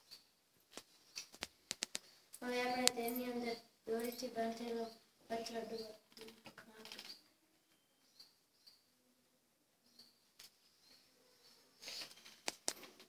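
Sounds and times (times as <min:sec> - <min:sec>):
sharp clicks: 0:00.1 - 0:02.1
faint high chirps: 0:02.6 - 0:12.4.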